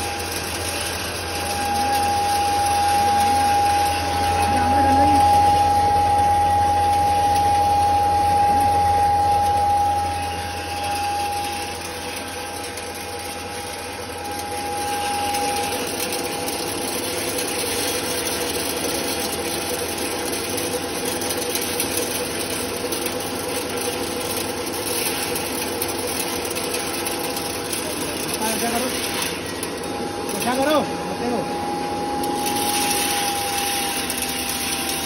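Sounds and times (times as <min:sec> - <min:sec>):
grain mill machine hum: 0:00.0 - 0:35.0
high whine: 0:00.0 - 0:35.0.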